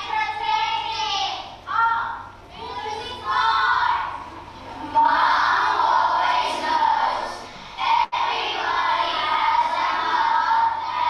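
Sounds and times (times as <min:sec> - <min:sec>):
children singing: 0:04.8 - 0:11.0.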